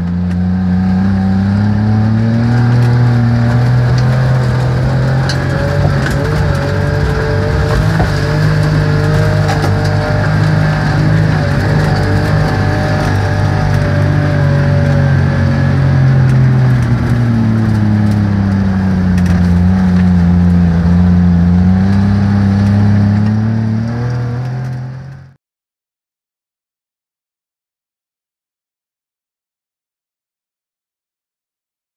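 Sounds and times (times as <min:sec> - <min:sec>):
two-stroke engine driving: 0:00.0 - 0:25.4.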